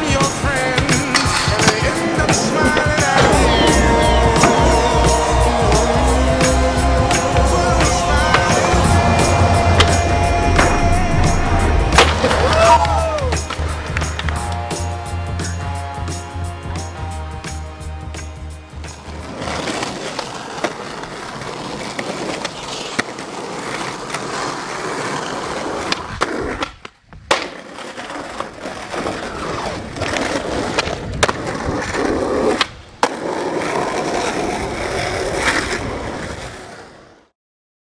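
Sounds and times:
skateboard clacking on ground: 0.0 - 4.7, 18.9 - 36.2
skateboard wheels rolling on pavement: 0.0 - 37.3.

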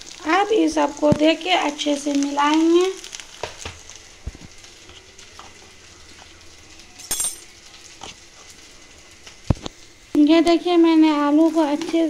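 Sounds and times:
faint sizzle: 0.0 - 12.0
metallic clink: 7.0 - 7.5.

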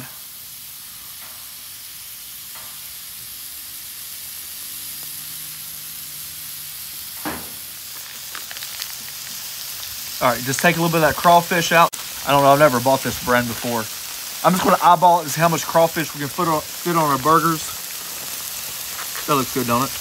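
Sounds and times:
burger patties sizzling on griddle: 0.0 - 20.0
plastic bag crinkling: 7.8 - 10.8.

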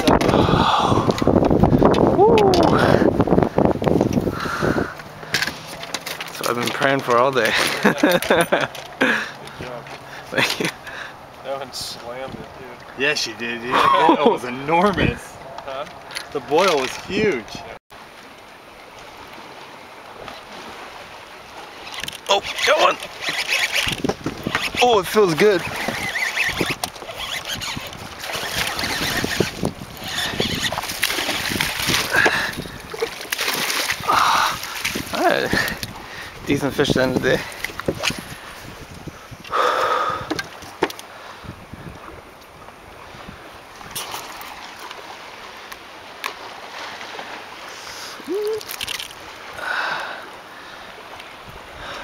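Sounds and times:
water lapping: 0.0 - 52.0
fish thrashing in water: 21.8 - 36.0, 48.3 - 49.6
rising squeak: 25.6 - 30.8.

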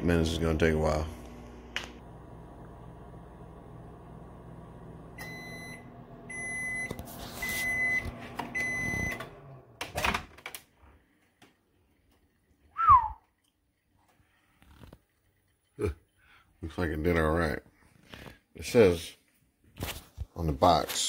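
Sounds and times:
microwave oven humming: 0.0 - 10.0
microwave long beeps: 4.9 - 9.4.

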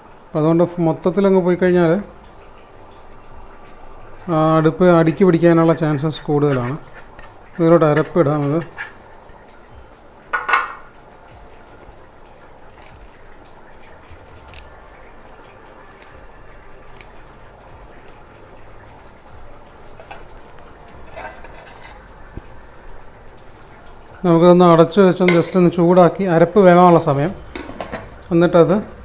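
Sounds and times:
container clinking on metal pot: 10.3 - 10.9.

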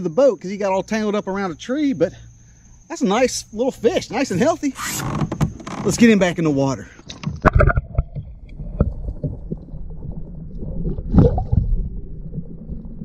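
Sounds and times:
water splashing: 5.8 - 13.0
muffled underwater rumble with knocks: 7.1 - 13.0.

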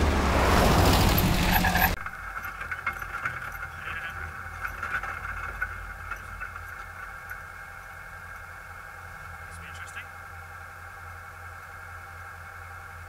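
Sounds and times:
car engine running at low revs: 0.0 - 13.0
light clicks and rattles: 2.1 - 7.5.

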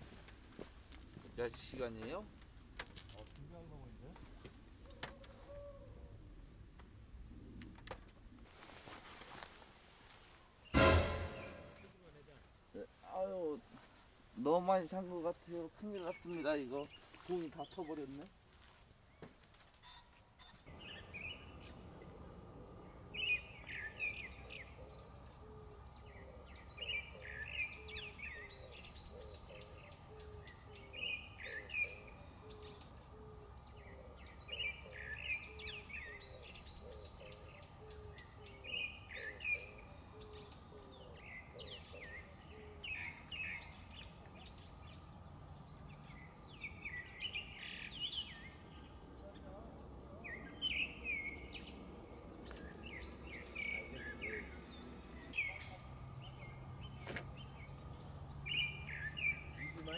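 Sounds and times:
songbird singing: 14.4 - 59.9
faint steady hum: 20.7 - 59.8.

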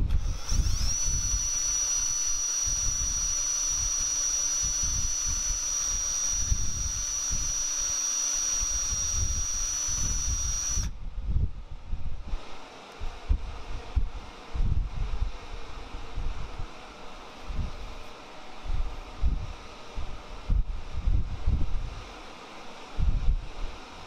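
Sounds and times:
cordless drill motor whine: 0.0 - 11.0.

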